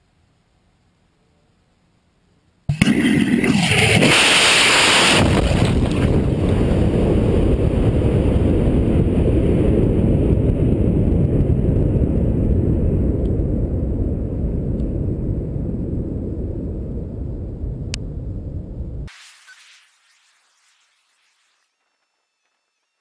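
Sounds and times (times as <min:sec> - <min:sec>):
muffled rocket engine roar: 0:02.7 - 0:19.1.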